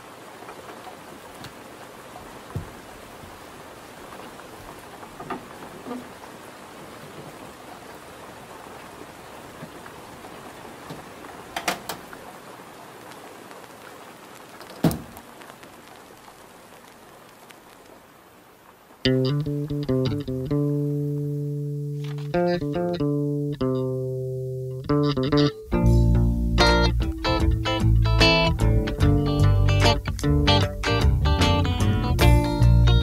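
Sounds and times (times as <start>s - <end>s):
steady rain hiss: 0.0s - 33.0s
light knocks: 2.5s - 2.8s.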